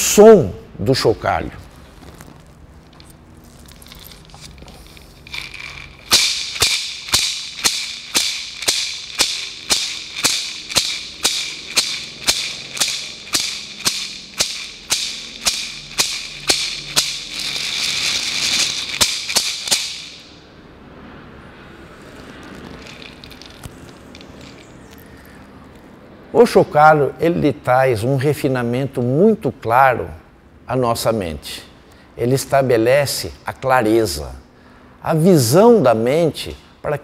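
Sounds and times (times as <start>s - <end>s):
gourd rattle shaking: 2.9s - 20.4s, 22.1s - 25.0s.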